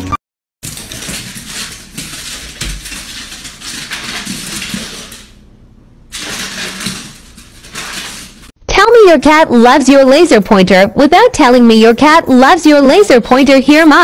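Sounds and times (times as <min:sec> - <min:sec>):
dog claws clicking on wooden floor: 0:00.6 - 0:05.4, 0:06.1 - 0:08.5.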